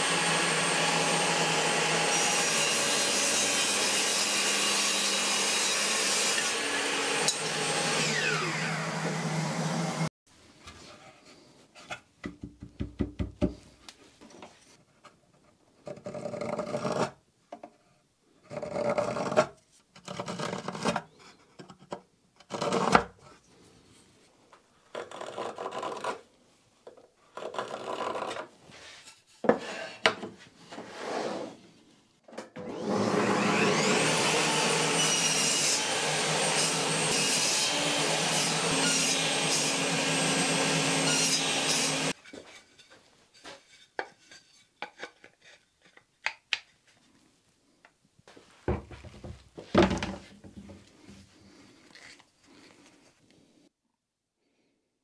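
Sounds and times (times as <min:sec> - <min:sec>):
knife scraping hardwood: 0:42.1 - 0:46.0.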